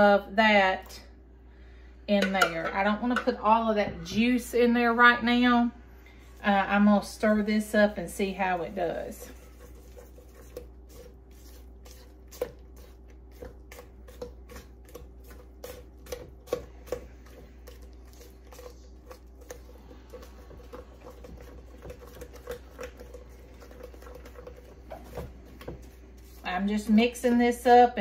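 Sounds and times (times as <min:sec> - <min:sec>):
low background hum: 0:00.0 - 0:28.0
spatula scraping a steel bowl: 0:08.4 - 0:13.0.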